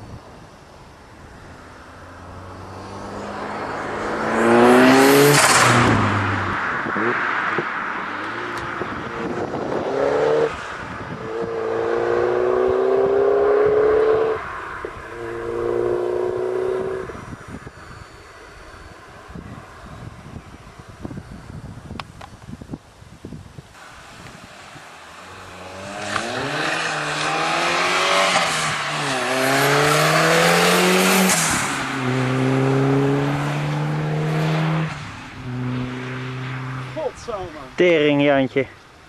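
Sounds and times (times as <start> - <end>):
car engine revving up: 1.4 - 17.7, 25.2 - 37.8
car accelerating past: 1.5 - 18.1, 25.1 - 37.4.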